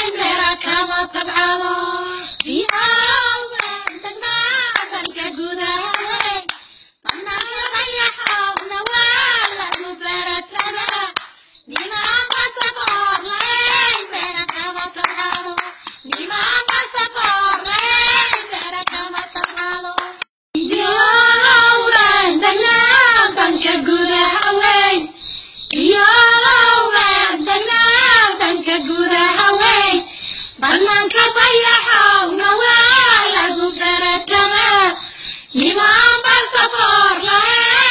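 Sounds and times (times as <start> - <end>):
voices singing: 0.0 - 37.9
rhythmic hand clapping: 2.4 - 23.1, 24.4 - 24.8.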